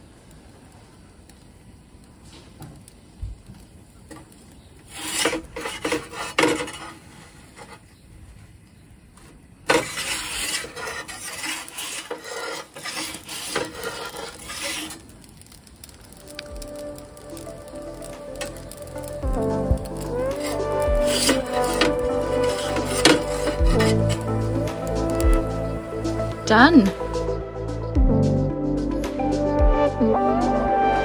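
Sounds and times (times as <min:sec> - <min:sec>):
metal peel scraping on stone: 0:04.8 - 0:07.9, 0:09.7 - 0:15.1, 0:20.0 - 0:25.6.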